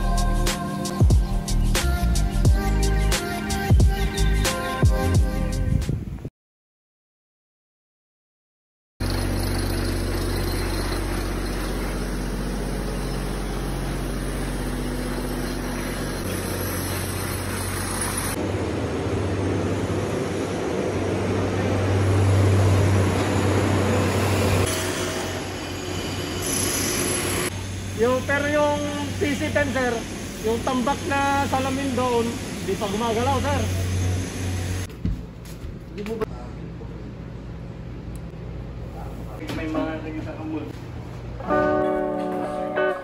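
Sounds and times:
construction site noise: 0:09.0 - 0:43.0.

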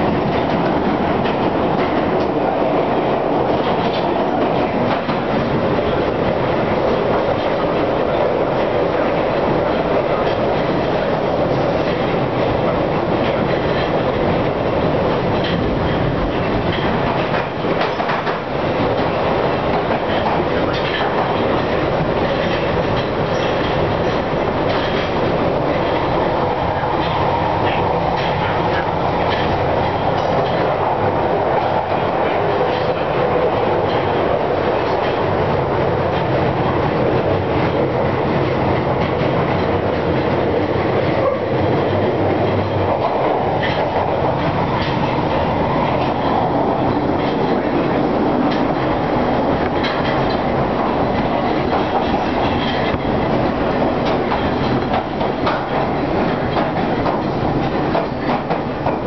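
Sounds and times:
train wheels rumbling on rail: 0:00.0 - 0:59.0
clicks over rail joints: 0:15.3 - 0:26.1, 0:41.0 - 0:59.0.

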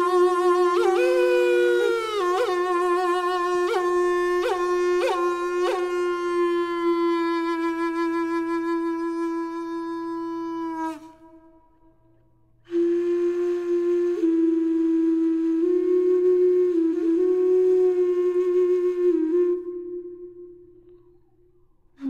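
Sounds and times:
wind instrument long note: 0:00.0 - 0:11.8, 0:12.7 - 0:20.9.

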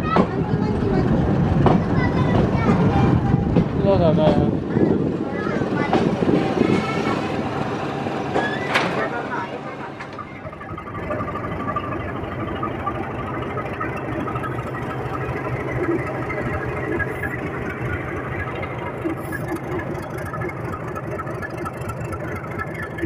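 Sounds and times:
locomotive diesel engine running: 0:00.0 - 0:23.0.

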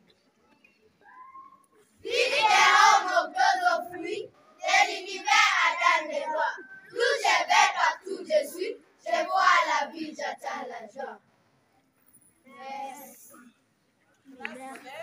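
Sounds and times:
children reciting in unison: 0:02.0 - 0:11.2.

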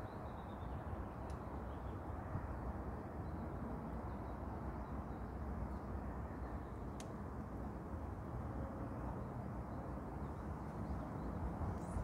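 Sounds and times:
wind rumbling on microphone: 0:10.4 - 0:12.0.

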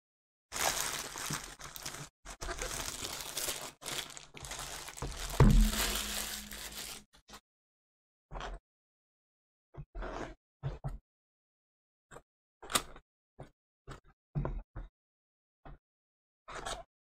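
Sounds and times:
plastic bag crinkling: 0:00.5 - 0:07.1
loud thump: 0:05.2 - 0:06.5.

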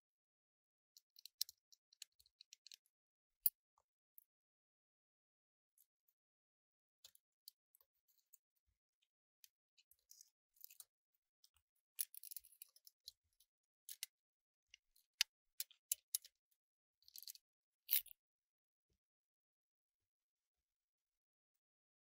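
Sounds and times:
small clicks and ticks: 0:01.0 - 0:03.9, 0:07.0 - 0:18.2.

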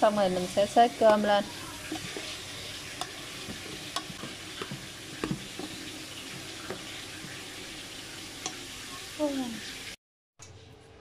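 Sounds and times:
spoon scraping pot: 0:00.3 - 0:08.7.

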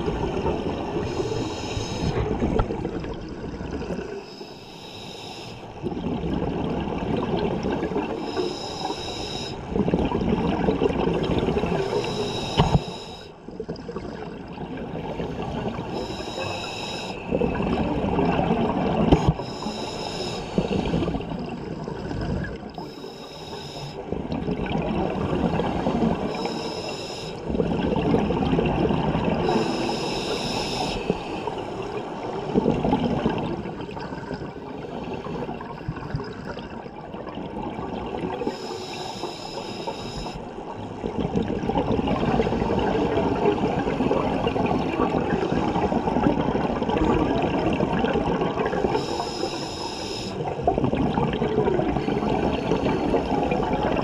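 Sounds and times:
exhaled air bubbling: 0:00.0 - 0:54.0
regulator inhale hiss: 0:01.1 - 0:02.2, 0:04.2 - 0:05.7, 0:08.2 - 0:09.6, 0:11.8 - 0:13.4, 0:15.8 - 0:17.3, 0:19.2 - 0:21.2, 0:22.8 - 0:24.0, 0:26.2 - 0:27.4, 0:29.4 - 0:31.5, 0:38.4 - 0:40.5, 0:48.7 - 0:50.5.

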